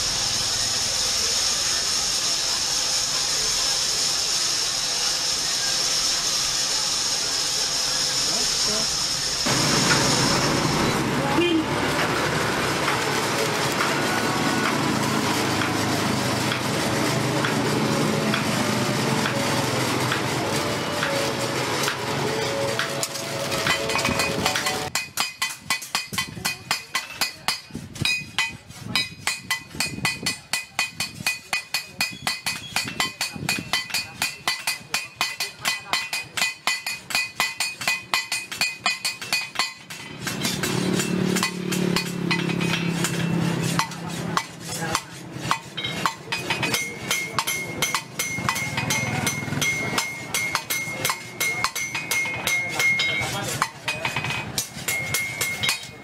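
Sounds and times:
hammer ringing on anvil: 23.6s - 56.0s.

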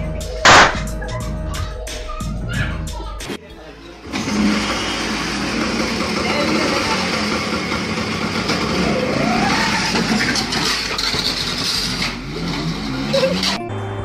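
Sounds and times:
scooter engine revving: 4.0s - 13.6s.

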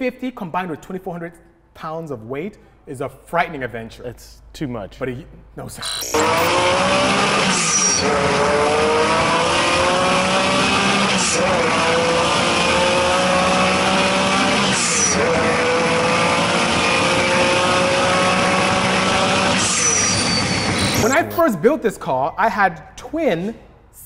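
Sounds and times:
car engine accelerating hard: 6.2s - 21.0s.

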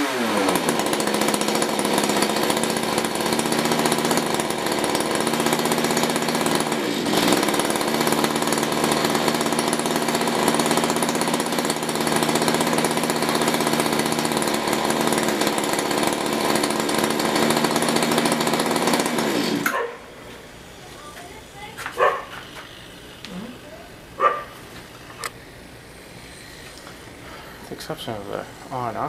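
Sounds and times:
two-stroke rototiller engine running: 0.0s - 20.0s.

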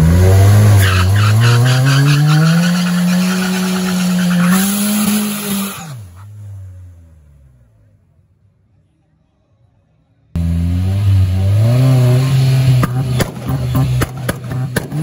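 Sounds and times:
car engine revving high: 0.0s - 7.1s, 10.4s - 15.0s
tyres spinning and squealing: 0.2s - 6.4s.

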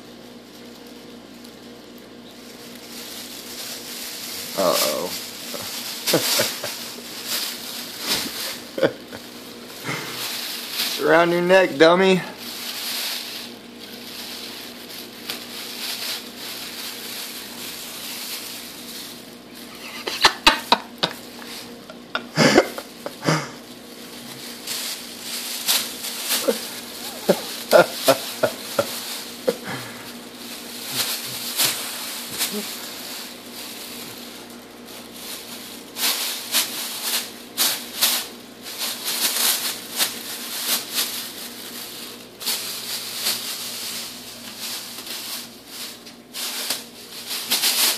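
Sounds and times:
plastic bag rustling and crinkling: 0.0s - 47.9s.

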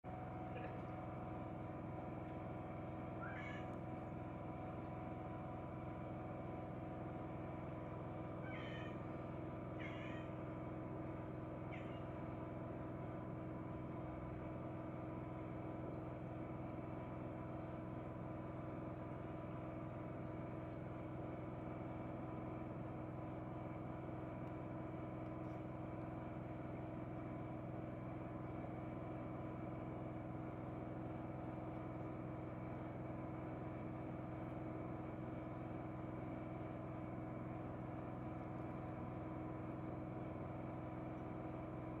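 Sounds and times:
steady mechanical hum: 0.0s - 42.0s.

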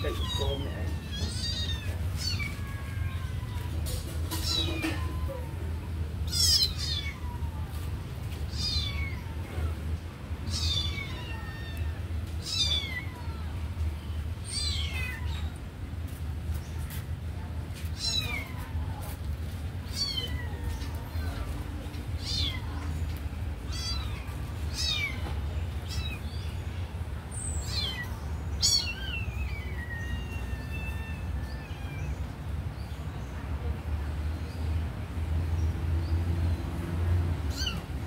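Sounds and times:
kitten meowing: 0.0s - 7.8s, 8.5s - 9.8s, 10.4s - 13.6s, 14.4s - 15.6s, 18.0s - 18.8s, 19.9s - 21.6s, 22.2s - 22.9s, 23.7s - 26.6s, 27.6s - 32.2s, 37.5s - 37.9s.

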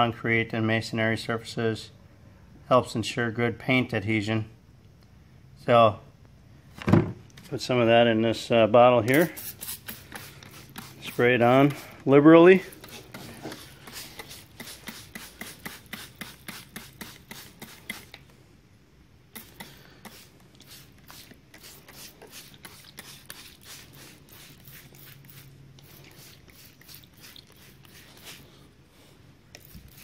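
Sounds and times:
spray bottle squirting: 9.1s - 12.0s, 12.6s - 18.3s, 19.3s - 28.5s, 29.5s - 30.0s.

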